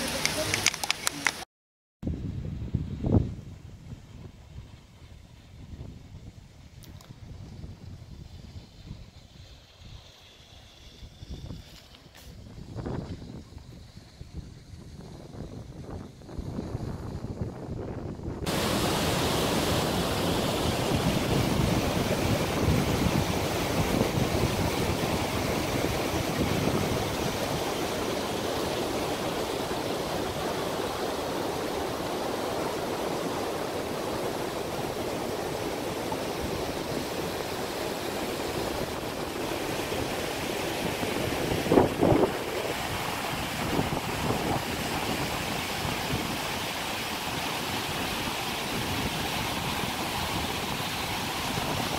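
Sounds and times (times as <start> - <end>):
rushing meltwater: 0.0 - 1.4, 18.4 - 51.9
wind on microphone: 2.0 - 10.1, 10.7 - 51.9.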